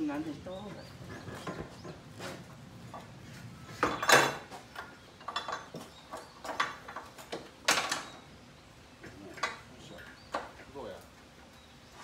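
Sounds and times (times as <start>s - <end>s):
metal tools clanking and rattling: 3.8s - 8.3s, 9.0s - 10.7s.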